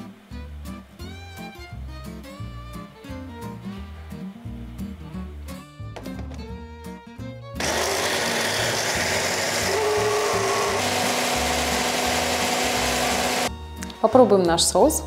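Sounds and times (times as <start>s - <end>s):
background music: 0.0s - 15.0s
blender running: 7.6s - 13.5s.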